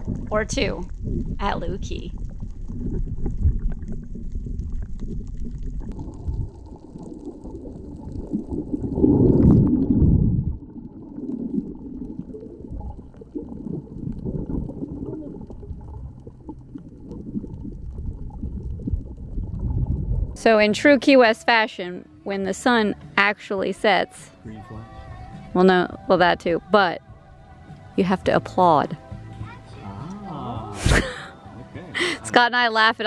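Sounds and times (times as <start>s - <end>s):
underwater churning rumble: 0.0s - 20.4s.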